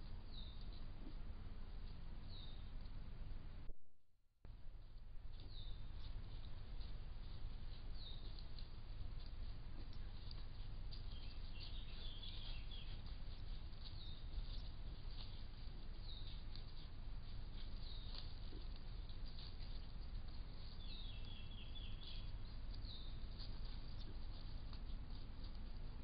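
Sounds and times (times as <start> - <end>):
birds chirping: 2.2 - 2.8, 7.9 - 8.6, 9.8 - 24.4.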